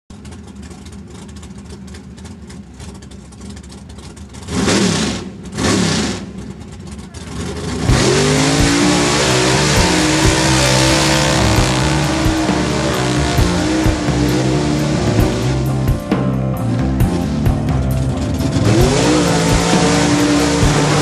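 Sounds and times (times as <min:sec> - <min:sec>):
engine rumbling and revving: 0:00.1 - 0:21.0
loud music: 0:07.8 - 0:21.0.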